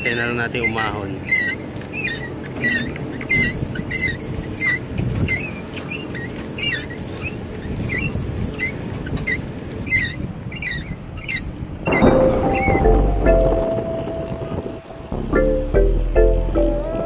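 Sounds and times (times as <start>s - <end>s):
rope pulley squeaking: 0.0s - 12.8s
wind rumbling on microphone: 0.0s - 17.0s.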